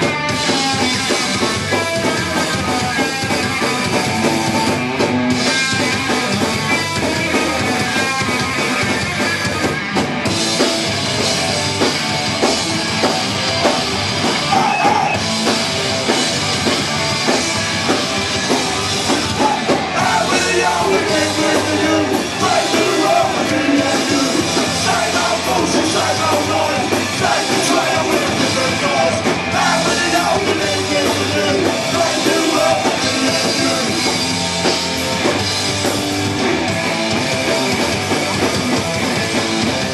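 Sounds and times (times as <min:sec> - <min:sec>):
drum kit: 0:00.0 - 0:39.9
electric guitars: 0:00.0 - 0:39.9
person singing: 0:19.2 - 0:34.1.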